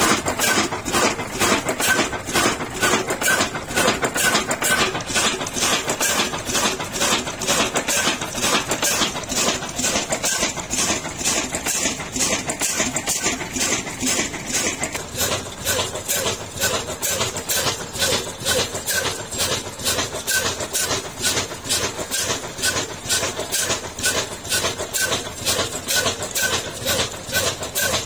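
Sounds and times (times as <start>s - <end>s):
diesel engine knocking rhythmically: 0.0s - 28.0s.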